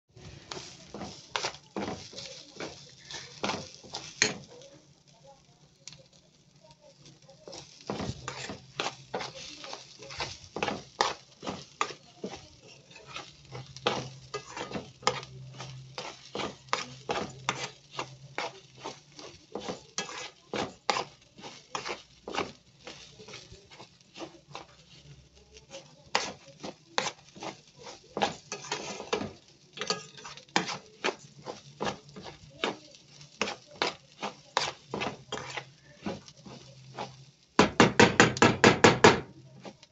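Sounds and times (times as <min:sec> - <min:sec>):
metal spoon scraping metal pot: 0:07.5 - 0:09.3, 0:10.1 - 0:22.6, 0:26.1 - 0:32.8, 0:33.4 - 0:37.2.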